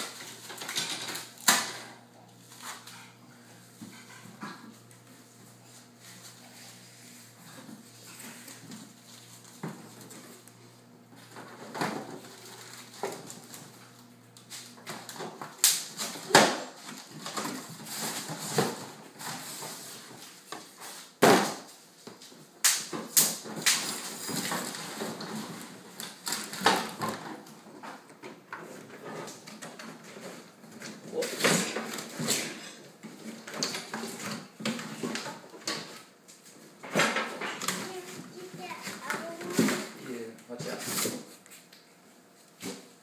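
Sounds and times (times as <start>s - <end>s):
parts knocking and clattering: 0.0s - 2.0s.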